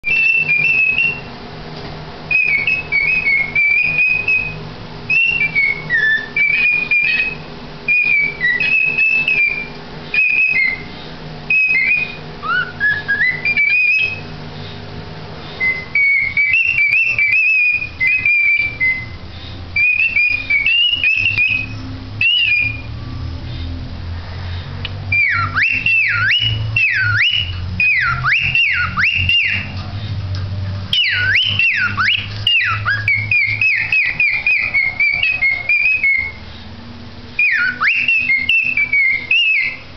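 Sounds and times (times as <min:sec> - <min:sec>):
cockatiel whistling: 0:00.0 - 0:01.3, 0:02.3 - 0:14.3, 0:15.5 - 0:19.2, 0:19.8 - 0:23.7, 0:25.1 - 0:30.0, 0:30.9 - 0:36.6, 0:37.4 - 0:39.9.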